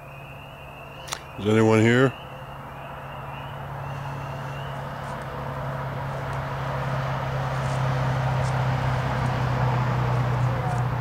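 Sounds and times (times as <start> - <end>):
road noise: 0.0 - 11.0
vehicle engine hum: 0.0 - 11.0.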